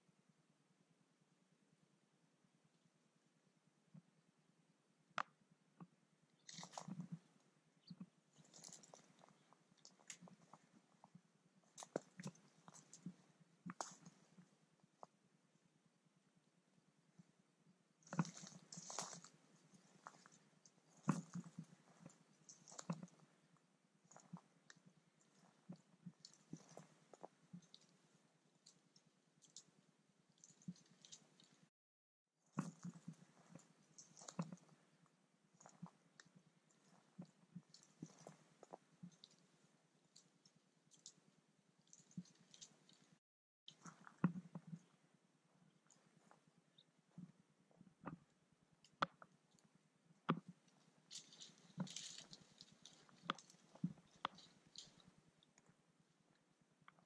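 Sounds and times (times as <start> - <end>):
faint clicks and rustles: 5.2 - 15.2, 18.0 - 31.7, 32.4 - 57.0
footsteps crunching through dry grass: 18.1 - 19.4, 51.1 - 55.0
twigs snapping: 51.1 - 55.1.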